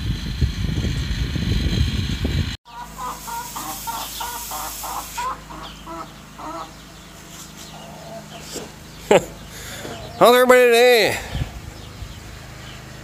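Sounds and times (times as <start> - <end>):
engine and wind noise: 0.0 - 3.0, 5.4 - 13.0
chicken clucking: 2.7 - 10.2.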